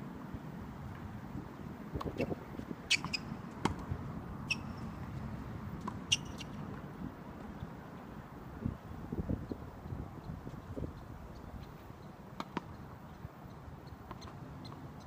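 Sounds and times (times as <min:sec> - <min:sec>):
tennis ball bouncing: 0:02.9 - 0:03.9, 0:05.8 - 0:06.8, 0:12.4 - 0:12.7.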